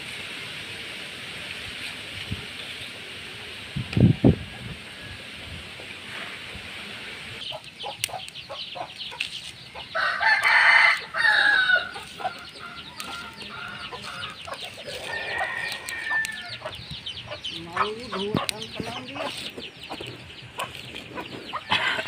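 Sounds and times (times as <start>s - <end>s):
chickens clucking: 5.7s - 22.0s
rooster crowing: 9.9s - 16.8s.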